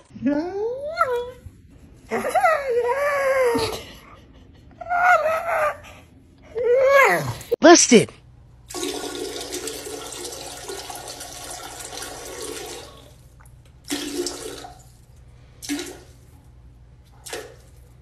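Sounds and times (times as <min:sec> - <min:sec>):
dog urinating into toilet water: 0:08.6 - 0:18.0.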